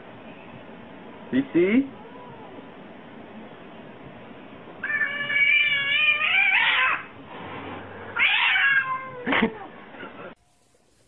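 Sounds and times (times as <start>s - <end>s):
cat meowing long and wavering: 2.0s - 2.6s, 4.8s - 7.1s, 8.2s - 9.3s.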